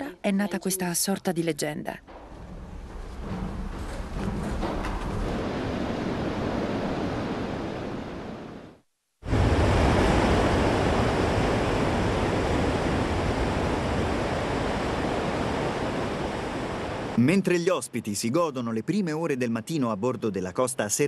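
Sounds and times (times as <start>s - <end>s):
sea noise: 2.1s - 18.2s
rushing wind: 2.2s - 17.2s.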